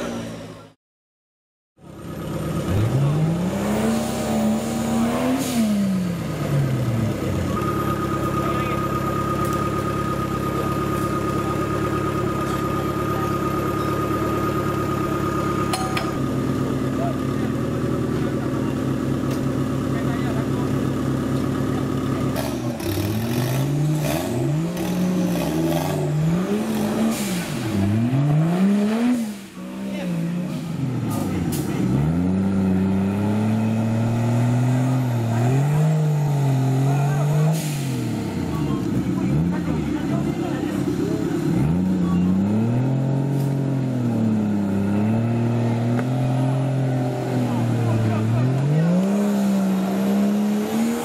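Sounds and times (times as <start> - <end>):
off-road vehicle engine revving: 1.9 - 51.0.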